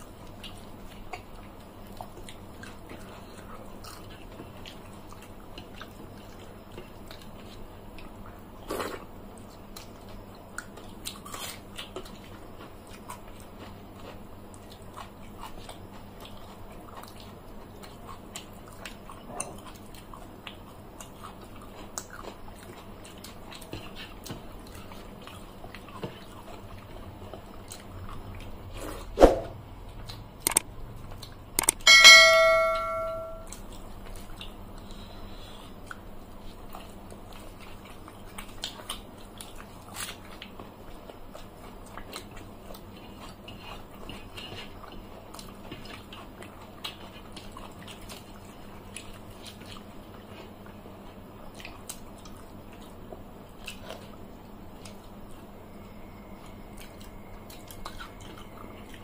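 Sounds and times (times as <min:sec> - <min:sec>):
people chewing and smacking: 0:00.0 - 0:29.2, 0:29.8 - 0:31.9, 0:33.4 - 0:59.0
metal plate clinking: 0:31.8 - 0:33.5.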